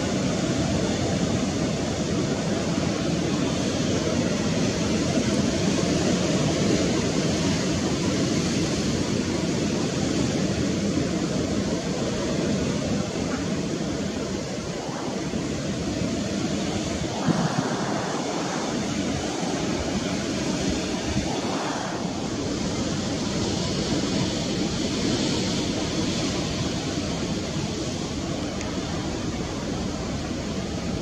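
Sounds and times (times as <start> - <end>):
sea surf: 0.0 - 31.0
wind rushing: 13.7 - 31.0.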